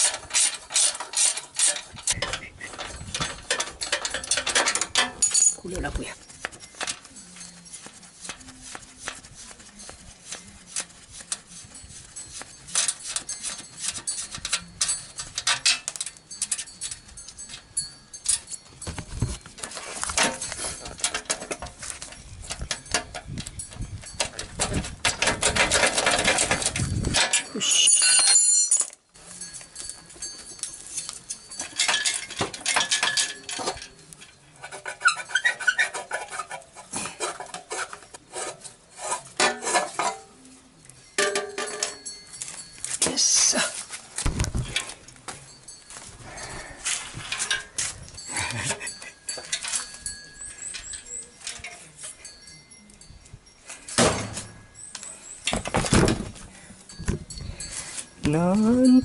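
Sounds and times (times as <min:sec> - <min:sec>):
dense metallic rattling: 0:00.0 - 0:06.2, 0:20.1 - 0:28.7
work glove rubbing on metal frame: 0:05.8 - 0:15.3, 0:34.6 - 0:40.4.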